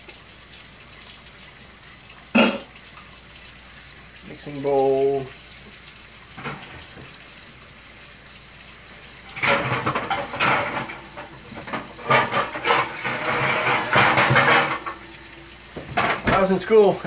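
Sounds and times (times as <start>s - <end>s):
bowls and pans clattering: 6.4s - 7.2s, 9.2s - 16.7s.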